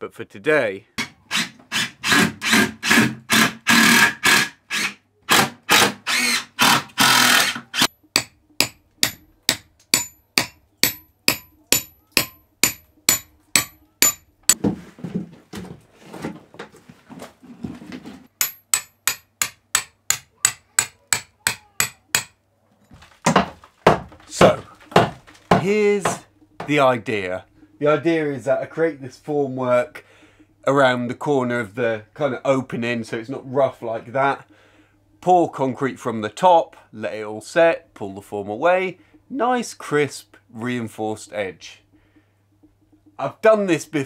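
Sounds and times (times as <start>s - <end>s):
hammer knocking on timber: 23.2s - 26.8s.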